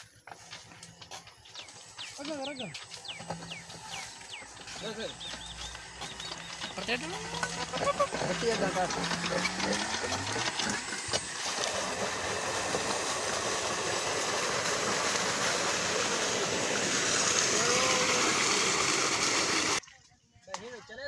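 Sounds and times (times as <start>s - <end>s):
water gushing into tank: 7.2s - 19.8s.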